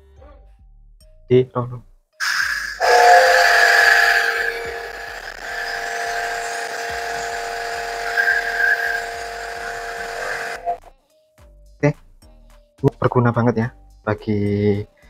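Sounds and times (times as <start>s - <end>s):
pressure washer motor whine: 2.2s - 10.8s.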